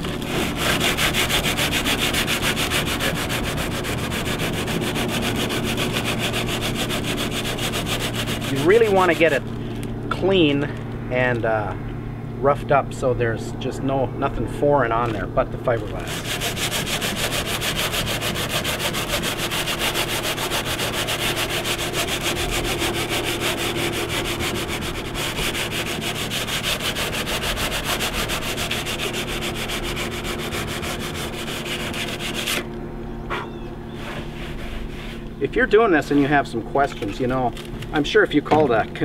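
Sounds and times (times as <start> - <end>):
sandpaper rubbing: 0.0 - 9.5, 15.0 - 32.7, 33.9 - 37.6.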